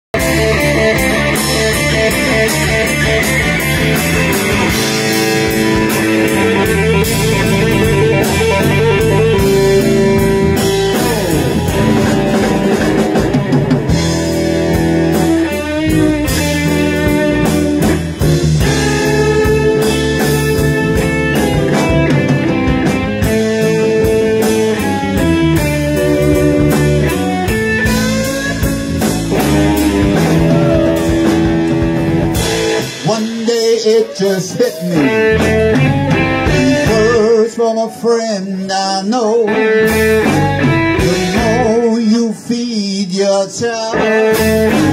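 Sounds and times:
electric guitars: 0:00.1 - 0:44.9
drum kit hits: 0:00.2 - 0:33.5.

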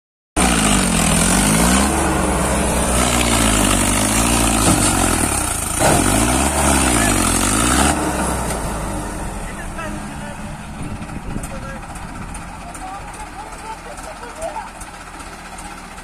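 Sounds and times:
diesel engines revving: 0:00.4 - 0:16.0.

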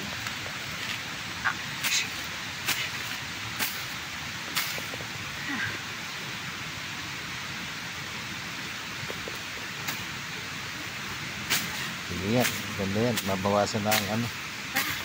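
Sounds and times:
steady hiss: 0:00.0 - 0:15.0
blade slashing through weeds: 0:01.8 - 0:05.0, 0:11.4 - 0:11.8.

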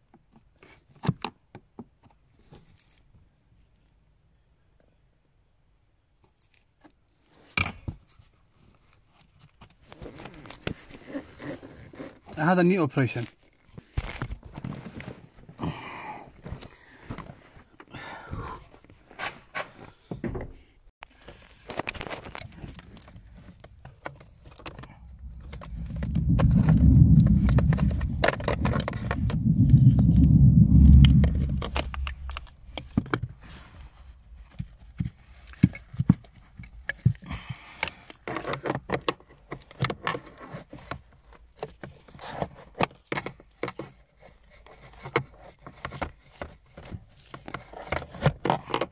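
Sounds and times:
loud low rumble: 0:24.7 - 0:33.0.

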